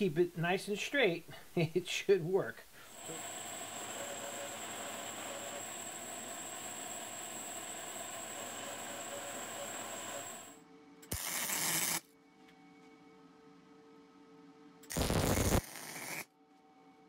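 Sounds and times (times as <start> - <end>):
welding arc crackling: 11.1 - 12.0, 14.9 - 16.3.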